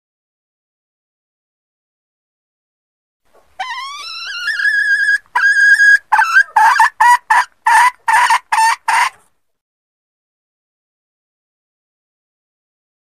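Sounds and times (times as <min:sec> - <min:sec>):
junglefowl hen calling: 0:03.6 - 0:09.3.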